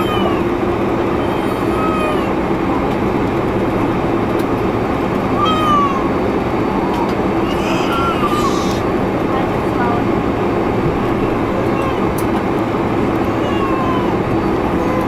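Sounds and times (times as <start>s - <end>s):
airliner cabin noise: 0.0s - 15.0s
high-pitched falling cry: 5.4s - 6.1s, 7.4s - 8.8s.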